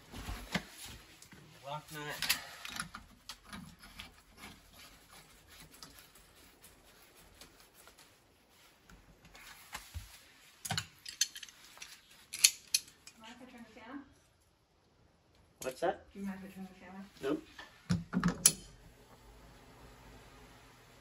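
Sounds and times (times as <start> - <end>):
faint scraping of metal parts: 11.0 - 13.3.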